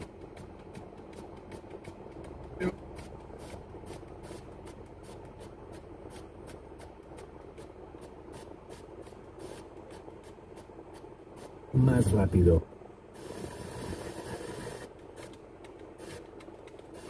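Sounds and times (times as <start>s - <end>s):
radio static hiss: 11.4s - 14.9s, 16.0s - 16.3s.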